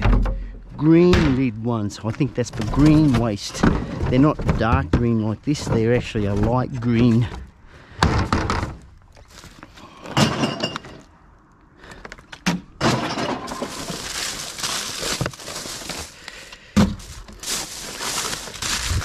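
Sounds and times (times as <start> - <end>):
glass clattering and breaking: 10.1 - 11.0, 12.8 - 15.6.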